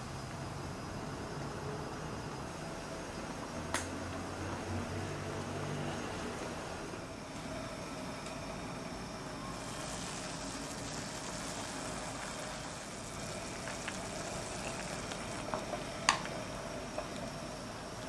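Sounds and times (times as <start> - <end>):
water boiling and bubbling: 6.4 - 18.0.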